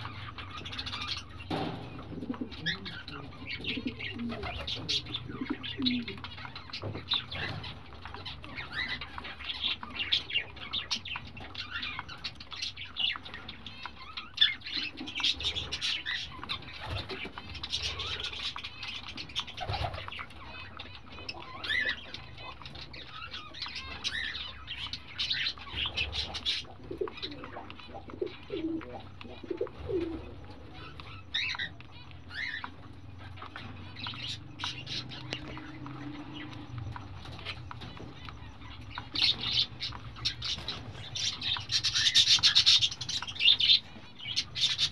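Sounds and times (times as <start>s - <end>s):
chicks begging chirps: 0.0s - 44.9s
faint low hum: 0.0s - 44.9s.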